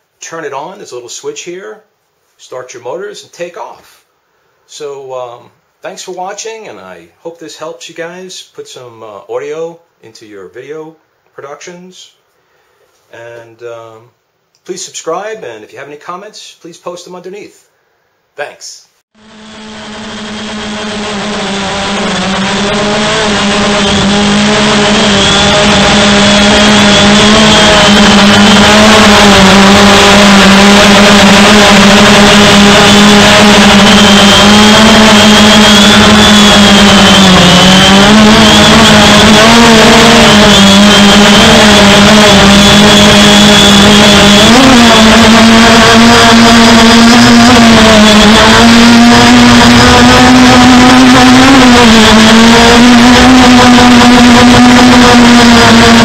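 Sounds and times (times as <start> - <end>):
drone propellers buzzing: 19.2 - 56.0.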